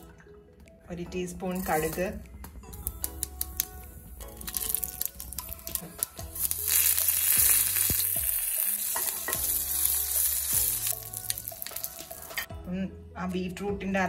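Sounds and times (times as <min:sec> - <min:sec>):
oil popping: 0:02.8 - 0:12.5
seeds sizzling in hot oil: 0:03.4 - 0:12.5.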